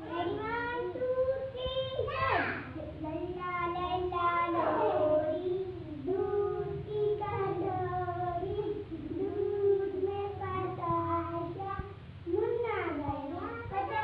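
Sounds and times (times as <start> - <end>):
young children singing: 0.0 - 14.0.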